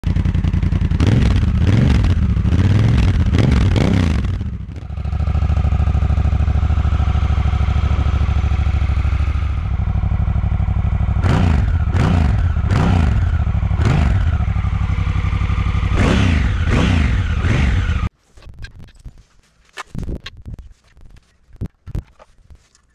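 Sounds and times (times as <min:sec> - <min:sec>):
motorcycle engine idling and revving: 0:00.0 - 0:18.1.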